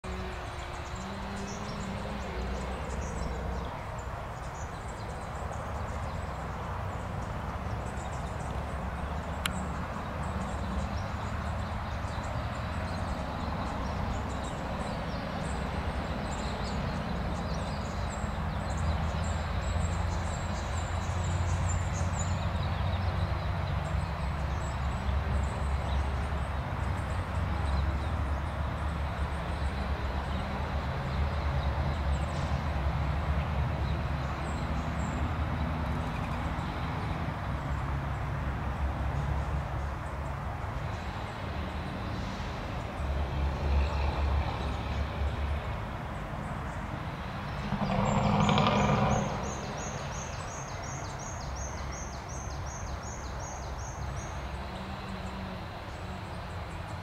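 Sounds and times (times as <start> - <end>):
small birds chirping: 47.5 - 57.0.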